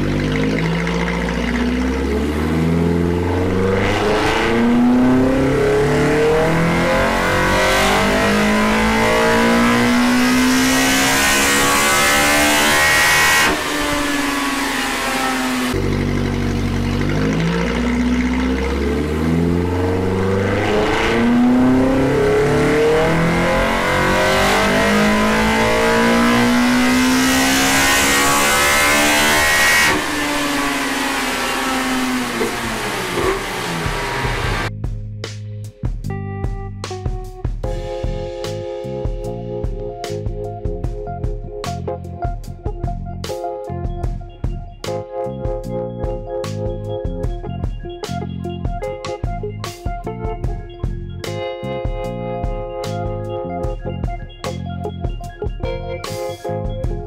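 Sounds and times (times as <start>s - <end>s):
car engine revving on dyno: 0.0s - 34.7s.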